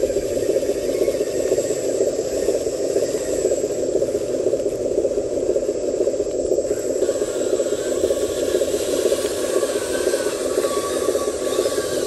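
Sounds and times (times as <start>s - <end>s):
small electric motor whirring: 6.6s - 12.0s.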